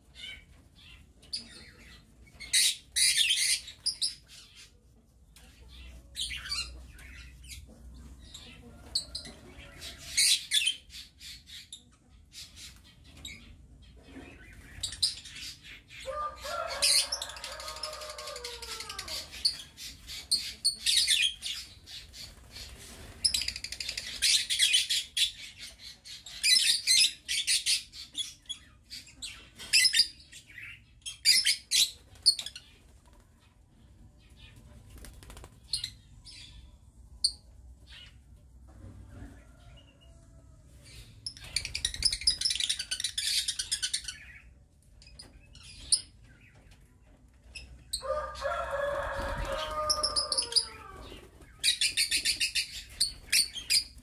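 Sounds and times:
birds chirping rapidly: 47.5 - 54.0.

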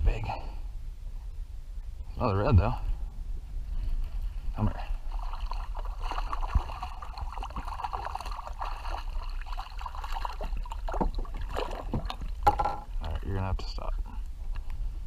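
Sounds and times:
water splashing against a hull: 4.6 - 13.9
fish thrashing in water: 4.9 - 13.2
knock: 11.9 - 12.8.

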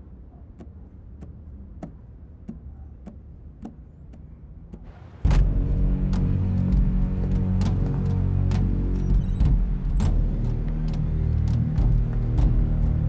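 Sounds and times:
loud dramatic music: 5.2 - 13.0
low rumble: 5.2 - 13.0.

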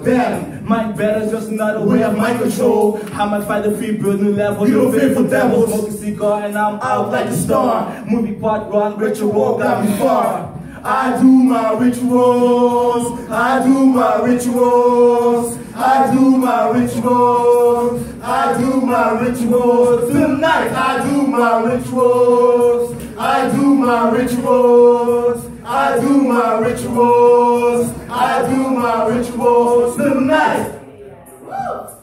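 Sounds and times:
men singing a cappella: 0.0 - 30.8.

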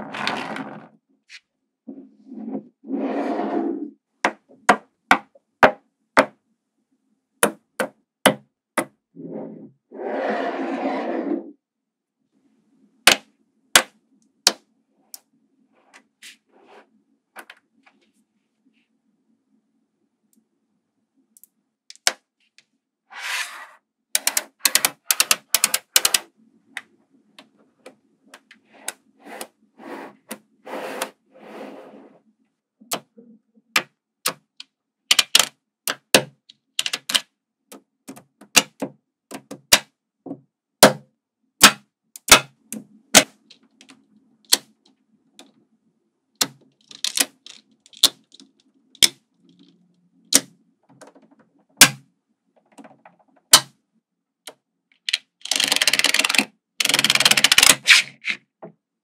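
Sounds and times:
magnetic balls clicking together: 24.2 - 26.2.

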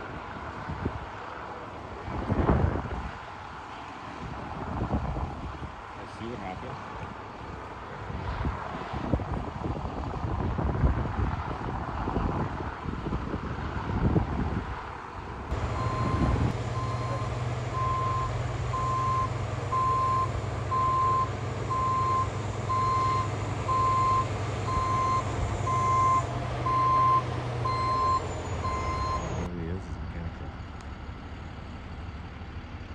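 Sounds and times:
low wind rumble: 0.0 - 32.9
diesel engine running: 15.3 - 32.9
reversing alarm beeping: 15.5 - 29.5.

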